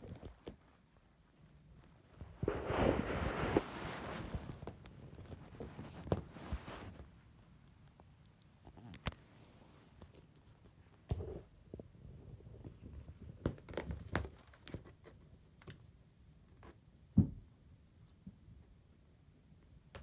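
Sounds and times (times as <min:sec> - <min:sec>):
cats play-fighting under blanket: 0:00.0 - 0:15.8
blanket rustling: 0:02.1 - 0:07.1.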